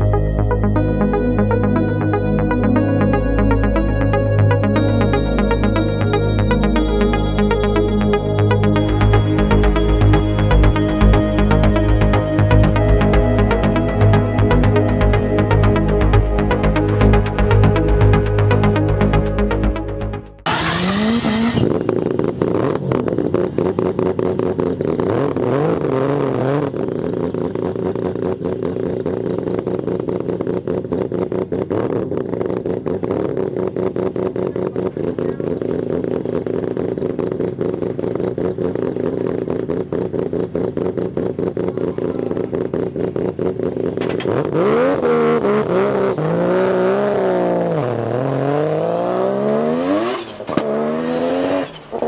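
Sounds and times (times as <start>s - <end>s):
rotary engine idling and revving: 0.0s - 52.0s.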